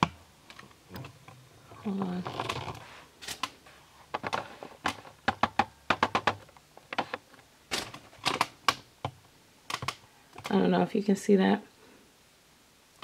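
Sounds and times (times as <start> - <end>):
handling noise clicks and taps: 4.1 - 10.5.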